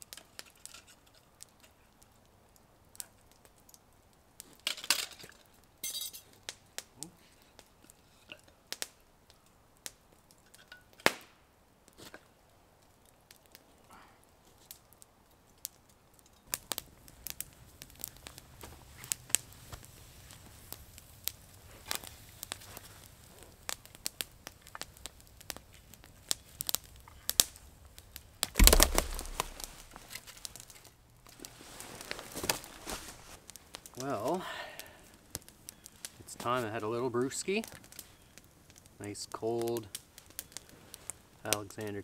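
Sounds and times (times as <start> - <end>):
campfire crackling and popping: 0.0 - 42.0
loud rustling: 28.6 - 30.1.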